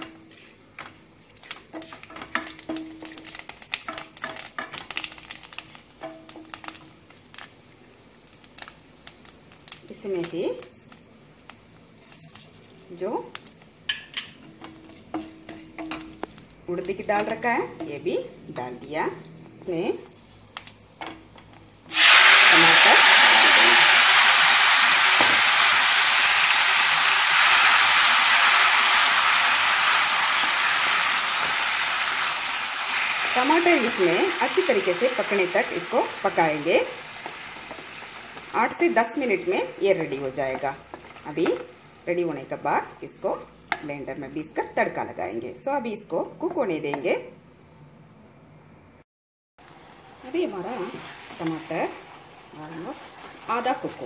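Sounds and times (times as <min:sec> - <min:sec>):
wooden spatula turning food: 0:00.0 - 0:21.9, 0:37.2 - 0:41.8, 0:49.6 - 0:54.0
tomatoes sizzling in hot oil: 0:01.3 - 0:41.8, 0:49.6 - 0:54.0
spatula stirring in metal pan: 0:01.7 - 0:07.4, 0:13.9 - 0:17.8.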